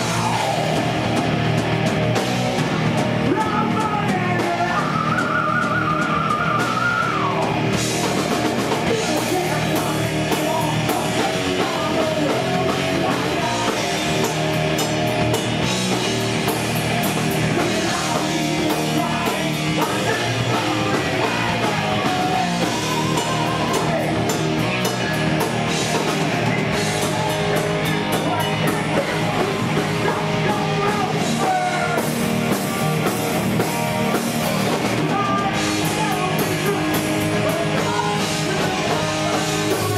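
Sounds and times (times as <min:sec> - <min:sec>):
bass guitar: 0:00.0 - 0:39.9
distorted electric guitars: 0:00.0 - 0:39.9
drum kit: 0:00.0 - 0:39.9
person singing: 0:08.8 - 0:14.5, 0:17.4 - 0:32.6, 0:34.9 - 0:39.9.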